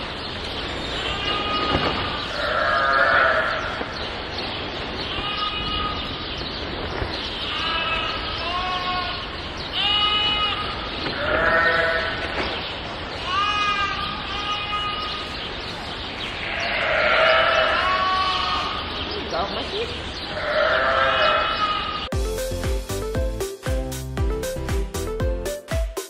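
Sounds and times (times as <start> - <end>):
sheep and lambs bleating: 1.0 - 4.0, 5.0 - 6.2, 7.4 - 15.4, 16.3 - 19.0, 20.3 - 22.1.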